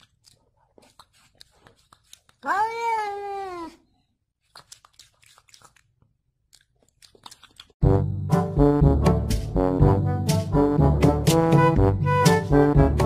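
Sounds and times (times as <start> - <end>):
music: 7.8 - 13.0.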